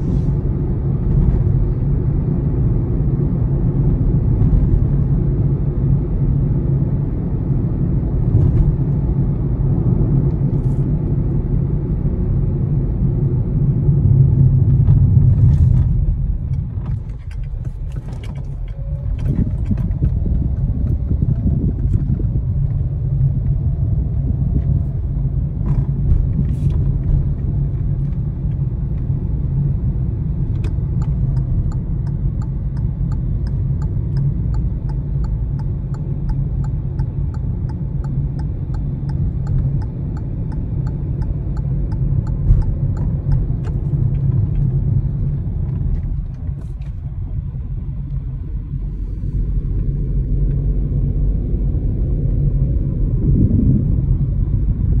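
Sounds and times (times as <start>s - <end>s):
road and engine rumble in car: 0.0s - 55.0s
faint regular ticking: 31.0s - 43.6s.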